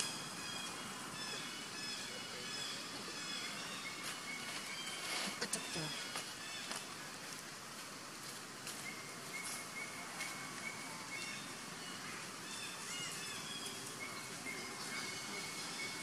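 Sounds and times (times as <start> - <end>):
steady background hiss: 0.0 - 16.0
faint rustles: 3.5 - 10.7.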